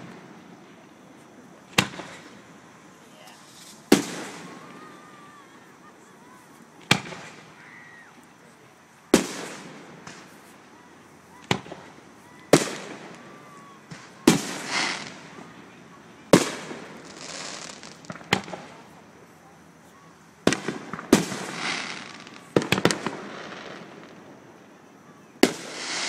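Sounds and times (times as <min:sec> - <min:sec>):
firework shells bursting: 0:01.7 - 0:02.6, 0:09.1 - 0:10.6, 0:11.4 - 0:15.5, 0:16.3 - 0:19.0, 0:20.4 - 0:24.3, 0:25.4 - 0:26.0.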